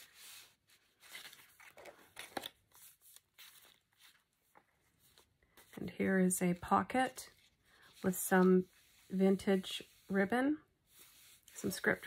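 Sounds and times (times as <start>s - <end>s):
paper pages rustling: 0.0s - 6.0s.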